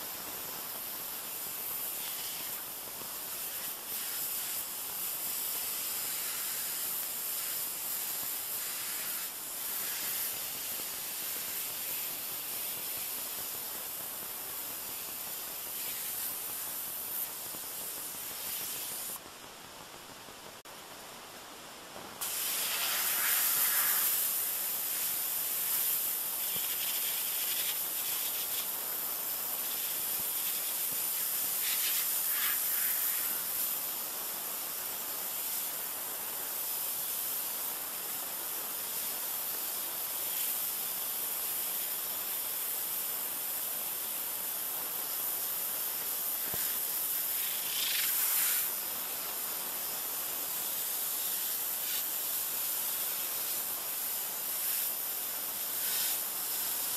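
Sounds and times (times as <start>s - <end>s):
pressure washer spraying: 0.0s - 19.2s, 22.2s - 34.0s, 45.4s - 56.9s.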